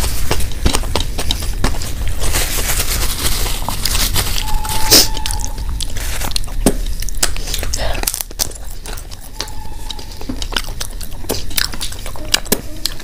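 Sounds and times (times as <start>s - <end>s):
chewing: 0.0s - 13.0s
tissue rustle: 1.8s - 6.3s.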